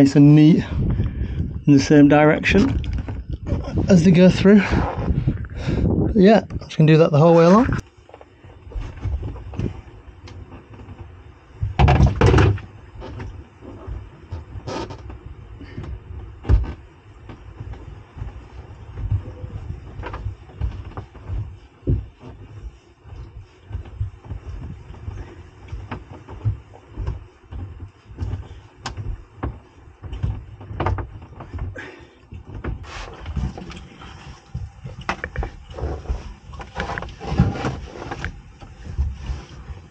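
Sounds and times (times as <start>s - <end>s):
cables rubbing: 0.0s - 39.9s
low thuds and rustling: 0.0s - 39.9s
sharp clicks and knocks: 7.8s - 33.9s.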